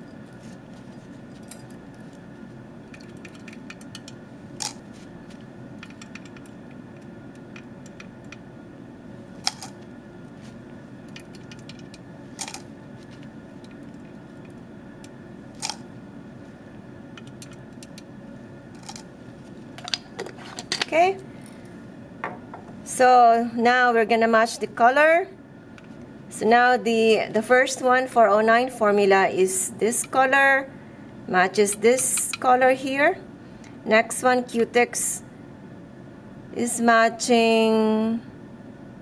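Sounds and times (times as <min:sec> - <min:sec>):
low room hum: 0:00.0 - 0:39.0.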